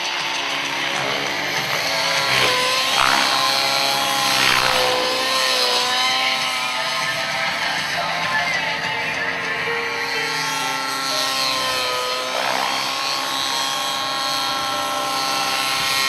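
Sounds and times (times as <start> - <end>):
model helicopter engine buzzing: 0.0 - 16.0.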